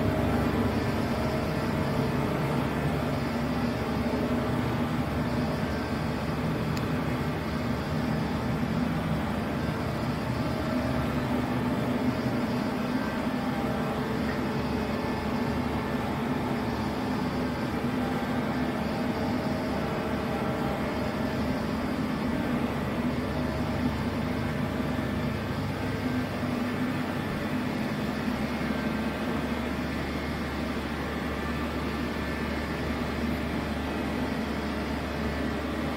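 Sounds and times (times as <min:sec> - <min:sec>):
machine hum with low drone: 0:00.0 - 0:35.9.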